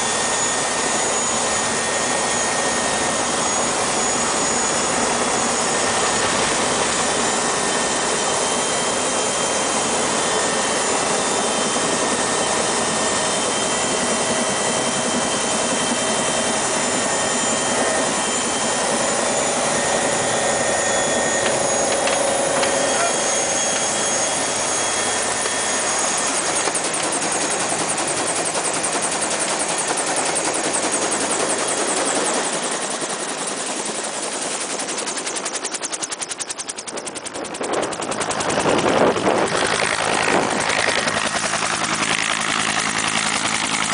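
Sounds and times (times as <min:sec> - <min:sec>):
helicopter engine and rotor: 0:00.0 - 0:43.9
rotor chop: 0:20.9 - 0:30.8.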